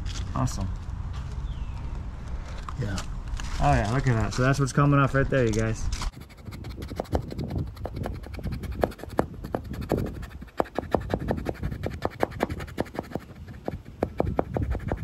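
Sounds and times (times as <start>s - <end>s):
plastic scraper scraping adhesive: 6.1s - 15.0s.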